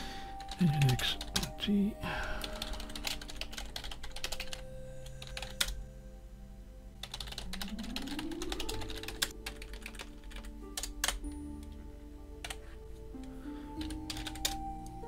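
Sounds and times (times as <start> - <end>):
typing on computer keyboard: 0.4 - 1.6, 2.2 - 5.8, 7.0 - 11.4, 13.2 - 15.0.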